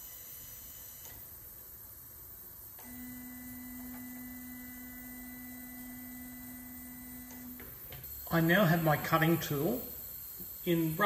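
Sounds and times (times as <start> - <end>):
motor whine: 2.8 - 11.0.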